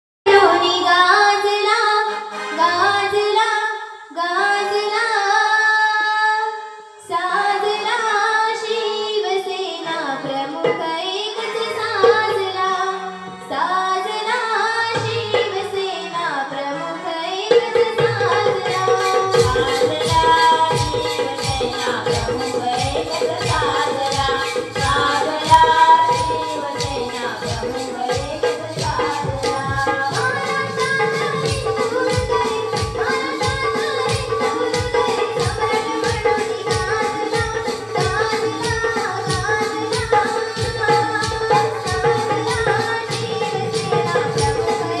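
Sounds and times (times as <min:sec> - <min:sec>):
girl singing into microphone: 0:00.3 - 0:45.0
hand drum accompaniment: 0:10.2 - 0:12.6, 0:14.8 - 0:15.9, 0:17.4 - 0:45.0.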